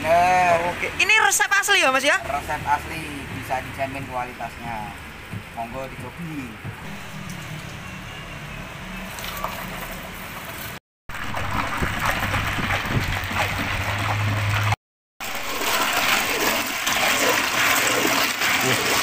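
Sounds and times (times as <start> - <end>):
ice and liquid sloshing in bucket: 9.1 - 19.0.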